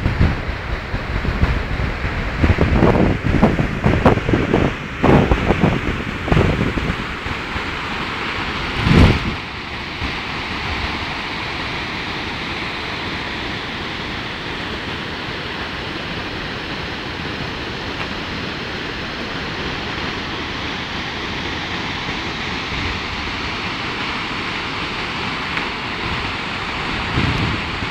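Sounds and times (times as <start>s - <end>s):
wind blast on microphone: 0.0s - 11.2s, 21.7s - 24.3s, 25.7s - 27.9s
waterfall rushing: 0.0s - 27.9s.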